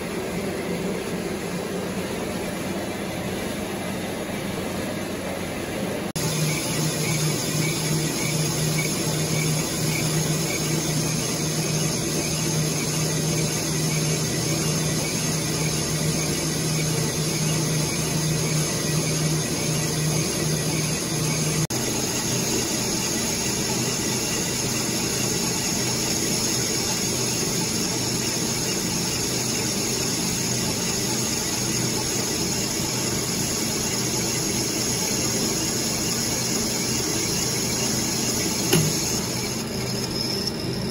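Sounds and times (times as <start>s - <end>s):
lathe turning metal: 6.2s - 40.9s.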